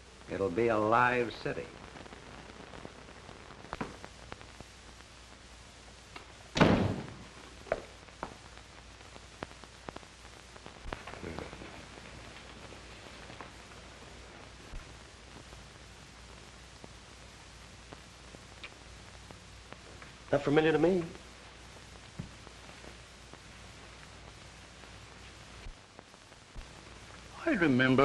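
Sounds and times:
film soundtrack hiss: 0.0s - 28.0s
heavy thud: 6.6s - 7.3s.

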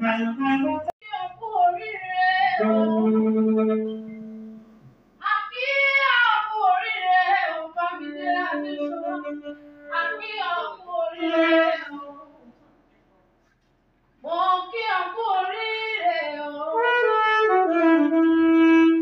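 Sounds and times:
high voice singing: 0.0s - 4.6s, 5.2s - 12.5s.

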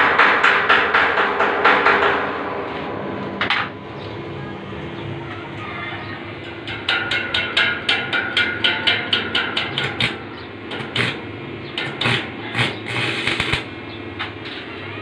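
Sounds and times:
welding arc crackle: 10.8s - 11.2s, 11.8s - 13.8s.

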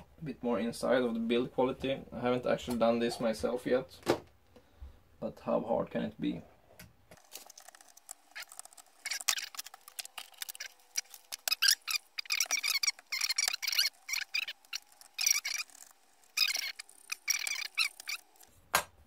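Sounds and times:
screws squeaking: 7.3s - 18.5s.

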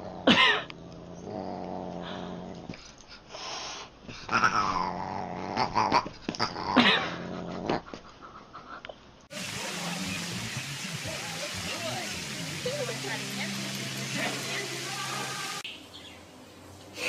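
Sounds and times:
animals growling: 0.0s - 2.8s, 4.2s - 7.9s.

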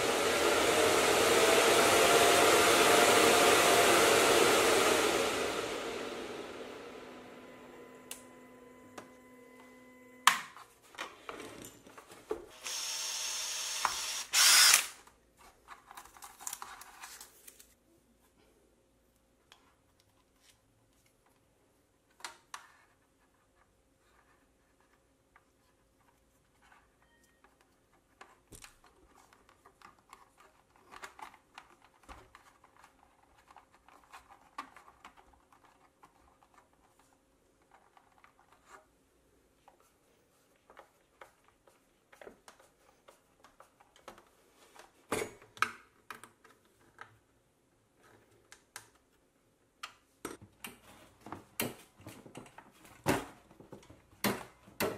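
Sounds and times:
hands handling small plastic parts: 15.0s - 17.8s, 24.4s - 38.9s.

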